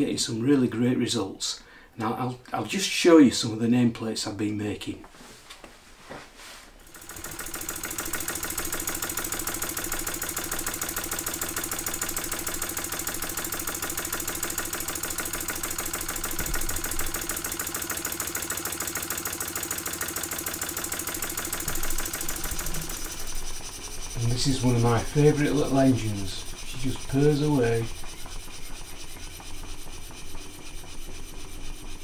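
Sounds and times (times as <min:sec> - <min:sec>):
model steam engine running: 0:06.9 - 0:32.0.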